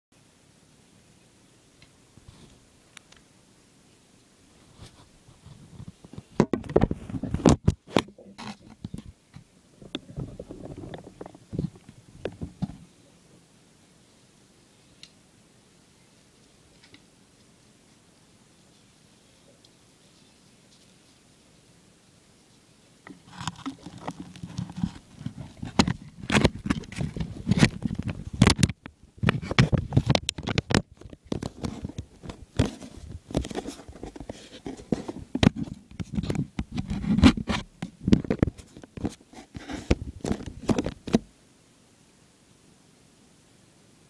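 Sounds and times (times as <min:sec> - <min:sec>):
microphone handling noise: 0:04.6 - 0:12.9, 0:23.1 - 0:41.3.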